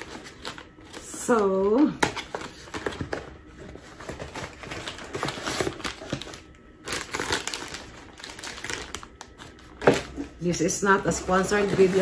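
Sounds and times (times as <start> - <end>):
paper bag rustling: 2.4 - 10.3, 11.1 - 12.0.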